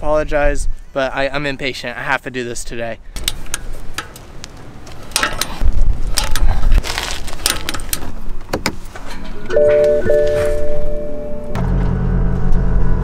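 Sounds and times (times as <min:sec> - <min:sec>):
wind buffeting microphone: 0:05.4 - 0:07.0.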